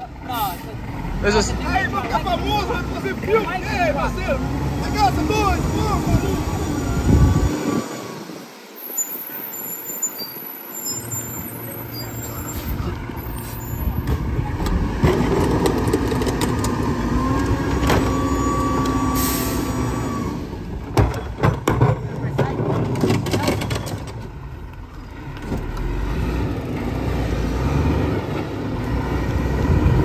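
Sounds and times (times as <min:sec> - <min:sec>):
garbage truck engine revving: 0:00.0 - 0:08.5, 0:10.8 - 0:21.5, 0:22.9 - 0:30.0
hydraulic whine: 0:05.4 - 0:21.4.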